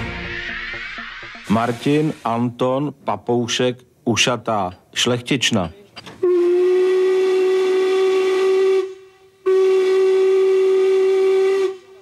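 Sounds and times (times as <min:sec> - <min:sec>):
steam locomotive whistle blasts: 0:00.0 - 0:02.5, 0:06.2 - 0:12.0.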